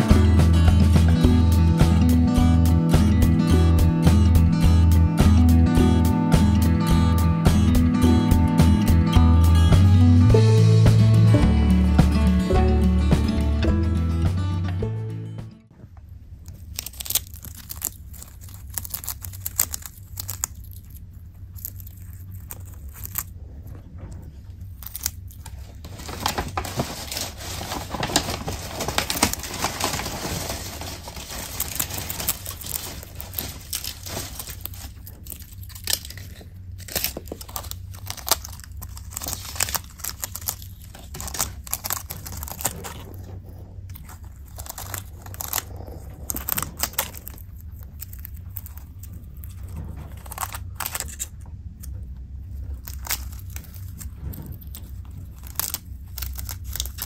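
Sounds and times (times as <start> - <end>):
chinchilla chewing a leaf: 16.3 - 57.0
plastic bag crinkling: 16.4 - 57.0.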